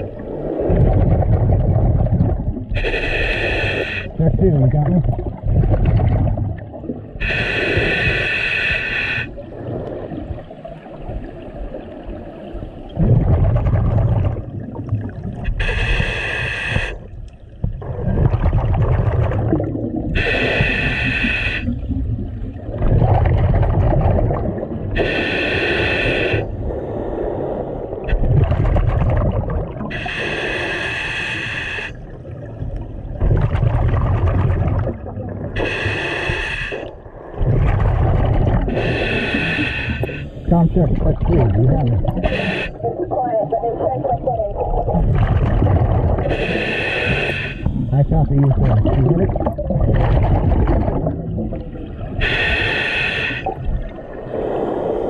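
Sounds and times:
exhaled air bubbling: 0:00.0 - 0:55.0
regulator inhale hiss: 0:02.8 - 0:04.2, 0:07.2 - 0:09.4, 0:15.5 - 0:17.2, 0:20.2 - 0:21.8, 0:25.0 - 0:28.0, 0:29.9 - 0:32.0, 0:35.6 - 0:37.0, 0:38.7 - 0:40.5, 0:42.2 - 0:42.8, 0:46.3 - 0:47.9, 0:52.2 - 0:53.6, 0:54.2 - 0:55.0.

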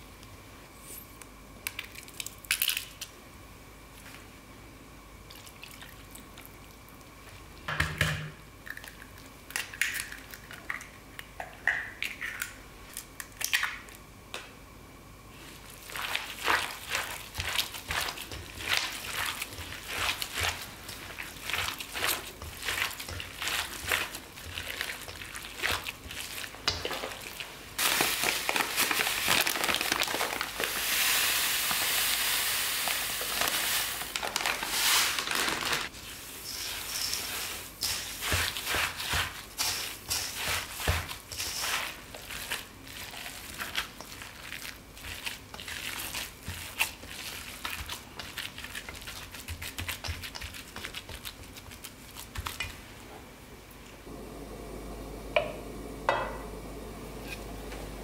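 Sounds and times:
wet squishing of kneaded meat: 0:15.4 - 0:30.7, 0:36.7 - 0:52.9
bread crumbs pouring hiss: 0:27.8 - 0:48.2.

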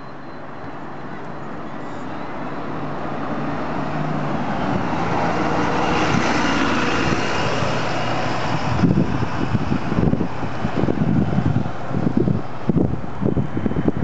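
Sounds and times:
bus driving past: 0:00.0 - 0:14.0.

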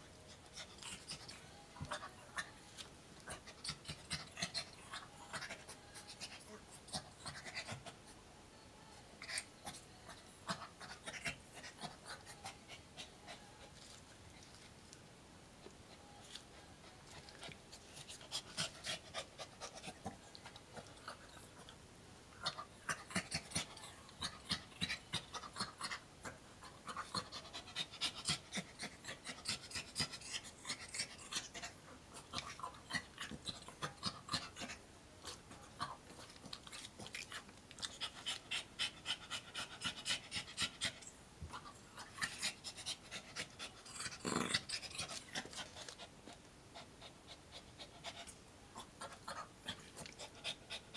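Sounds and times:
small dog panting: 0:22.4 - 0:50.9.

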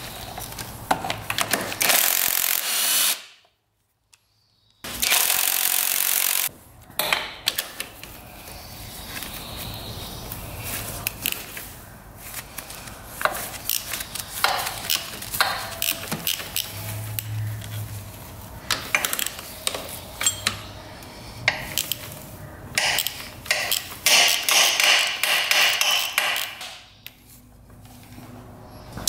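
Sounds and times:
metal tools clinking: 0:19.0 - 0:20.7.

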